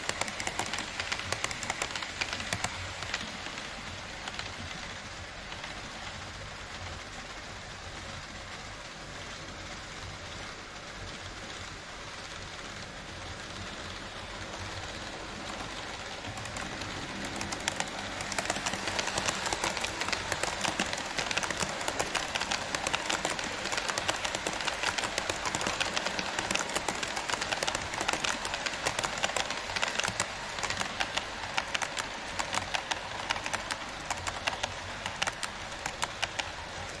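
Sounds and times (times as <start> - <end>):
wheels clicking over rail joints: 0.0 - 4.6, 12.9 - 37.0
model train motor rushing: 13.0 - 37.0.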